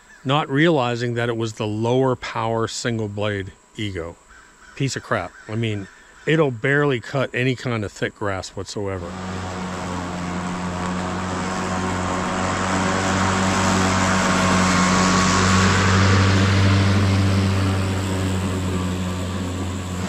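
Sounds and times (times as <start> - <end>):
electric lawn mower running: 8.9 - 20.0.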